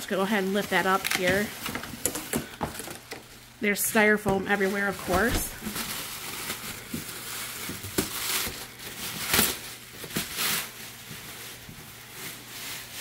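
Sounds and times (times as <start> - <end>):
plastic bag crinkling: 0.0 - 3.6, 4.2 - 13.0
styrofoam rubbing: 4.5 - 13.0.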